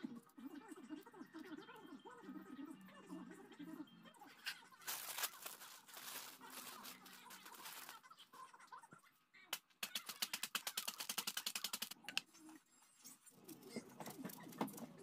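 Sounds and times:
tortilla chips crunching in foil bag: 0:04.8 - 0:08.1.

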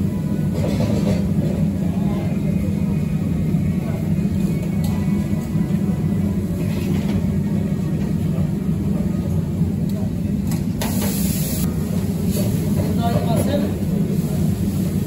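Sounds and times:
low kitchen rumble: 0:00.0 - 0:15.0
murmur of voices: 0:00.1 - 0:10.8.

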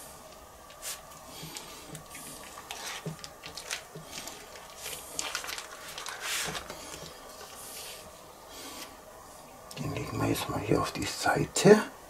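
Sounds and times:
baking paper rustling: 0:00.7 - 0:08.9.

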